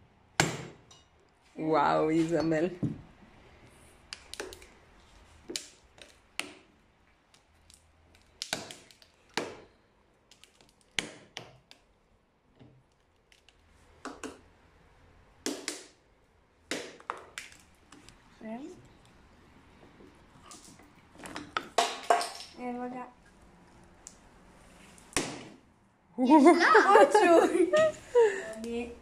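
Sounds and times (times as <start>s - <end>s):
knocks and cracks on coconut shell: 5.5s - 6.7s, 7.3s - 9.7s, 10.3s - 11.8s, 14.0s - 14.4s, 15.4s - 16.0s, 16.7s - 17.7s, 21.4s - 22.5s.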